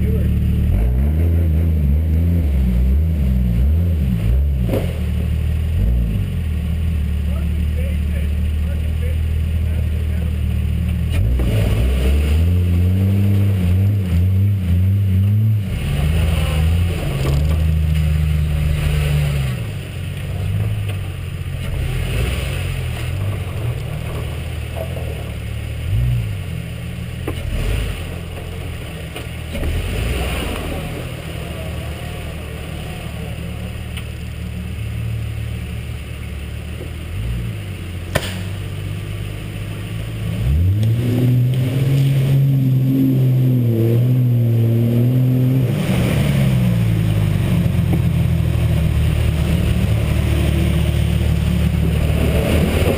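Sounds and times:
truck engine running: 0.0s - 52.9s
sharp click: 38.1s - 38.6s.

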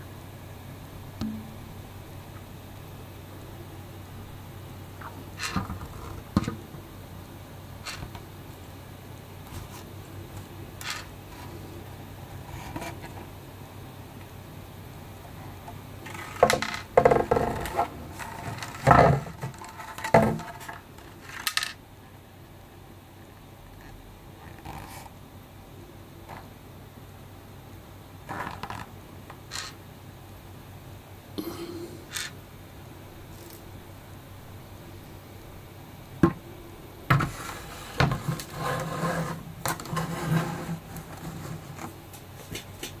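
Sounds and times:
plastic scraping and rubbing: 16.0s - 21.6s, 37.1s - 42.0s
plastic figure knocking and scraping: 16.1s - 20.8s.

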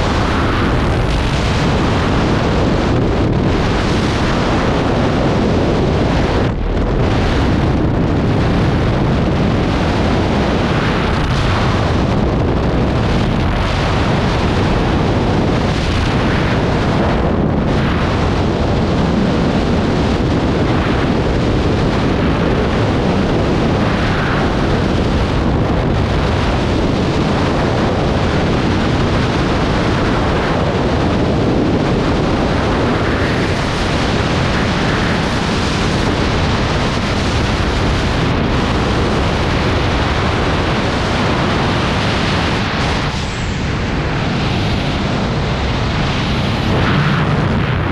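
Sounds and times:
wind buffeting microphone: 0.0s - 47.9s.

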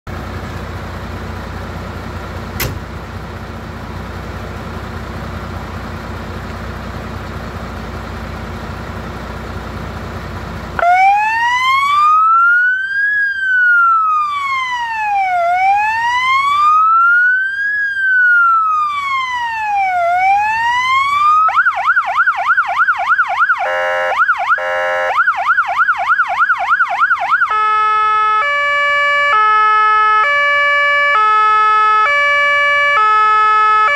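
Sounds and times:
fire engine idling: 0.1s - 33.9s
siren wailing: 10.8s - 33.9s.

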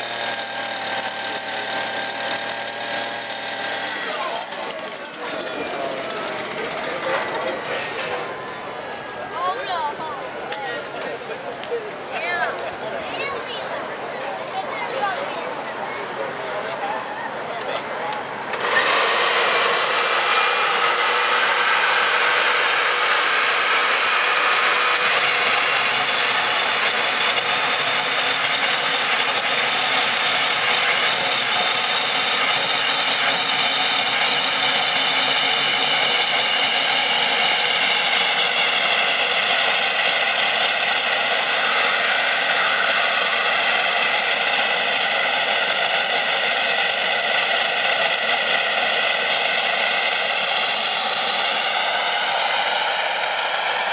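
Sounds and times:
jet engine whine: 33.5s - 53.9s.

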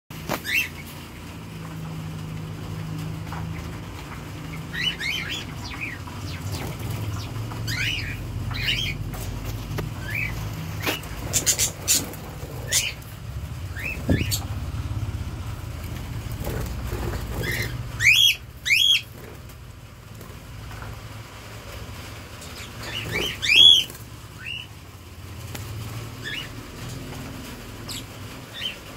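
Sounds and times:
steady low hum: 1.2s - 21.0s
budgerigars chirping: 4.5s - 9.1s, 9.9s - 13.0s, 13.7s - 14.5s, 16.4s - 19.1s, 22.4s - 24.7s, 26.2s - 26.6s.

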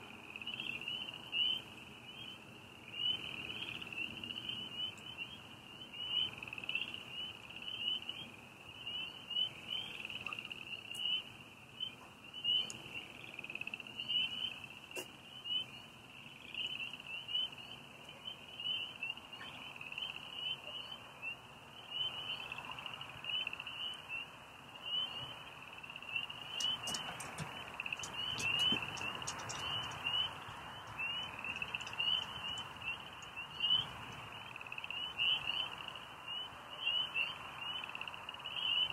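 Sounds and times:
frogs calling: 0.0s - 38.9s
faint clicks: 26.6s - 33.4s.

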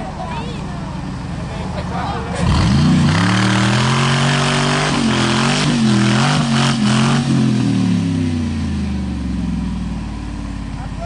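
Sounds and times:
engine revving hard: 2.3s - 8.8s.

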